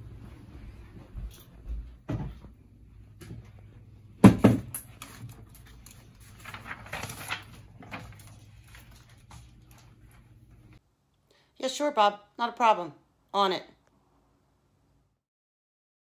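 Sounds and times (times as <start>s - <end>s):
knocks on wooden desk: 4.2s - 4.7s
paper rustling: 4.9s - 10.4s.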